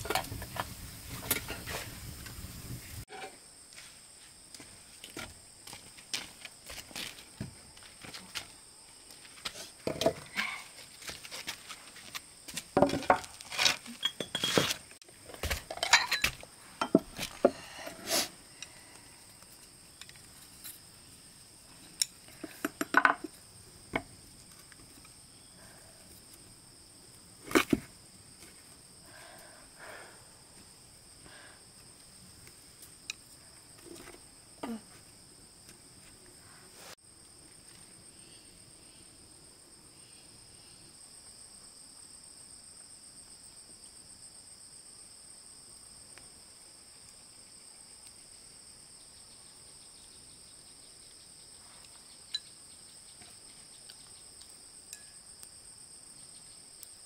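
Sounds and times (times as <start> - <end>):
objects knocking and clinking: 15.6 - 17.2, 22.4 - 23.3.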